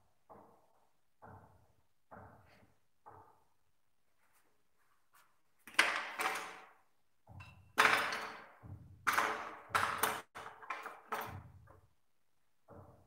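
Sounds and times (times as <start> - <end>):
tools clattering on wooden table: 5.7 - 11.8.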